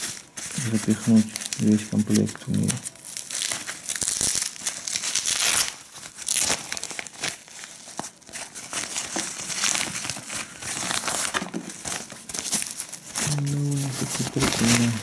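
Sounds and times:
fabric bag crinkling: 0.0s - 15.0s
packing paper crackling: 0.0s - 15.0s.

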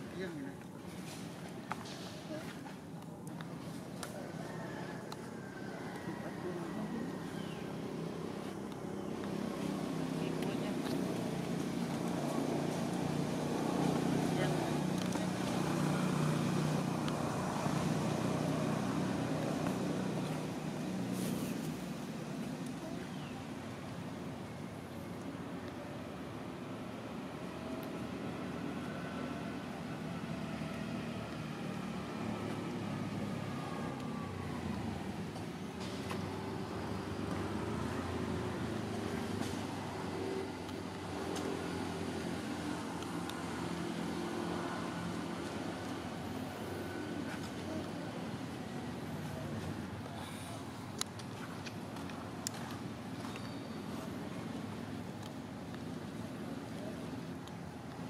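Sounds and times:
engine humming: 0.0s - 58.0s.

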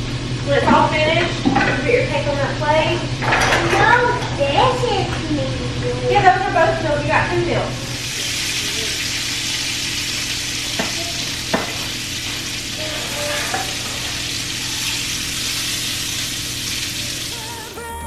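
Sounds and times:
sausage sizzling in a pan: 7.8s - 17.7s
spatula knocking against pan: 10.7s - 12.0s
spatula scraping: 10.8s - 16.2s.

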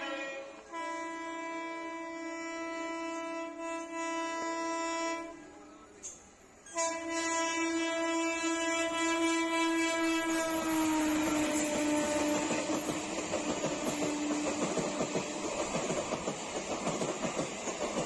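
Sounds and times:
locomotive horn blasts: 0.0s - 5.5s, 6.7s - 12.9s.

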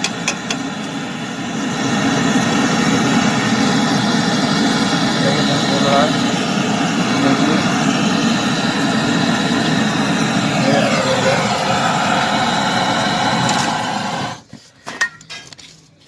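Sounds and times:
blowtorch flame burning: 0.0s - 14.5s.

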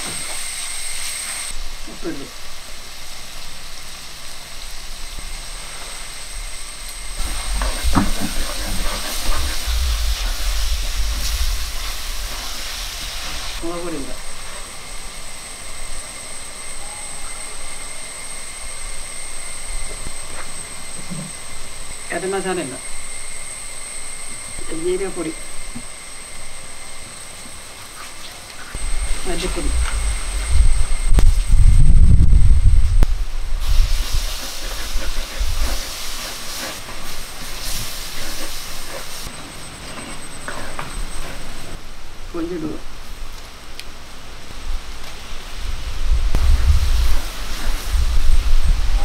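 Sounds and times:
wood fire rumble: 1.5s - 15.3s, 28.5s - 39.3s.

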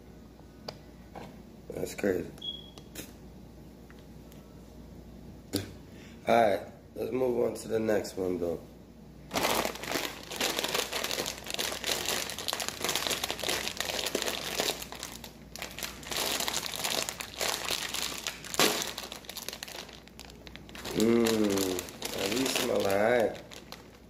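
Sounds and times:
chip bag crinkling: 9.3s - 24.0s
bag seal snapping open: 18.2s - 19.2s.

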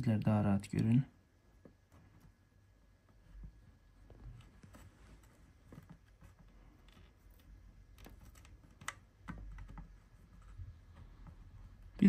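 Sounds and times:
low room hum: 0.0s - 12.0s
small clicks and taps: 3.0s - 11.8s.

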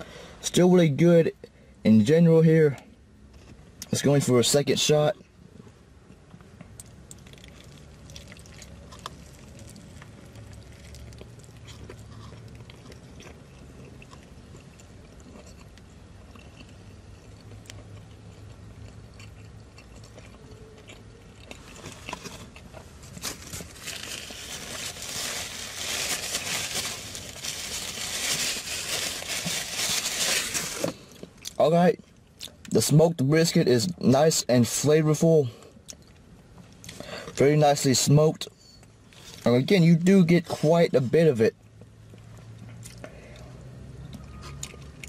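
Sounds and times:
crunchy chewing: 6.0s - 32.6s, 41.7s - 45.0s.

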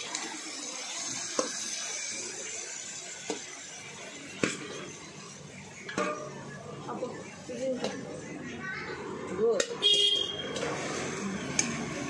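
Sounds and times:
food sizzling in a pan: 0.0s - 6.3s.

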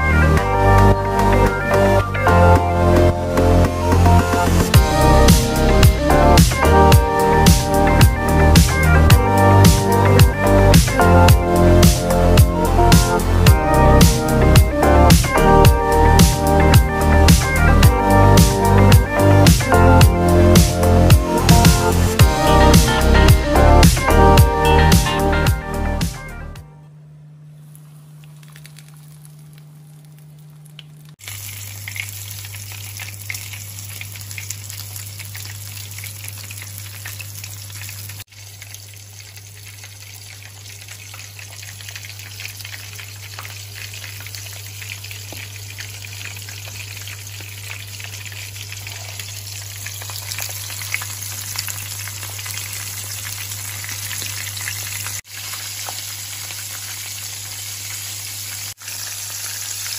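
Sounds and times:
low steady hum: 25.3s - 31.2s
fish frying in oil: 27.6s - 59.9s.

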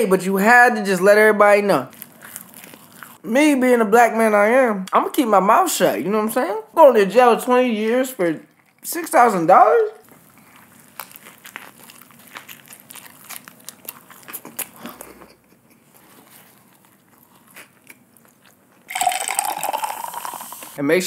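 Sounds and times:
biting into burger: 1.9s - 3.2s, 10.0s - 19.5s
chewing clicks: 10.1s - 15.8s.

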